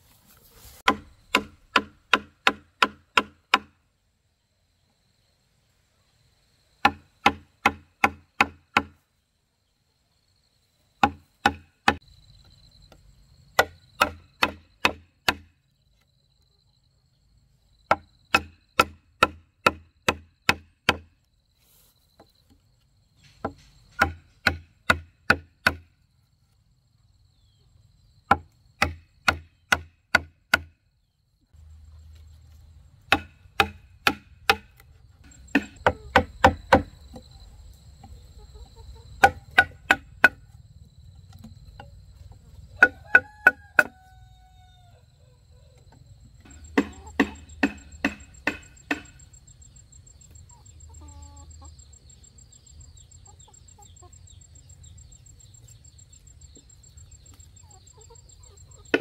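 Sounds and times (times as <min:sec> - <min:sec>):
hand tool striking wood: 0:00.8 - 0:03.8, 0:06.8 - 0:09.0, 0:11.0 - 0:12.0, 0:13.6 - 0:15.5, 0:17.9 - 0:21.1, 0:23.3 - 0:25.9, 0:28.3 - 0:30.8, 0:33.1 - 0:37.2, 0:39.2 - 0:40.4, 0:46.4 - 0:49.2.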